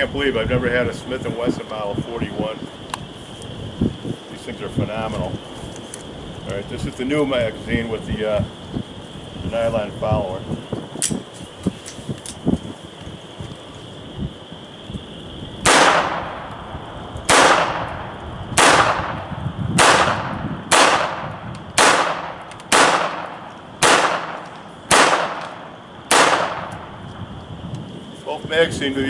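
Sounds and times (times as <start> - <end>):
pistol shots: 15.6 - 16.5, 17.3 - 26.9.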